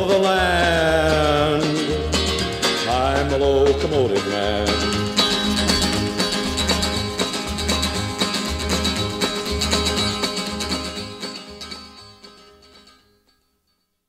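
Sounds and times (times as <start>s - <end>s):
guitar: 0.0s - 13.8s.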